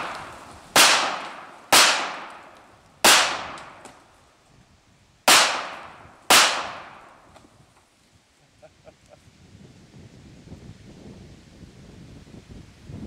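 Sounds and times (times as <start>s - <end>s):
pistol shots with echo: 0.0s - 3.9s, 5.3s - 7.2s.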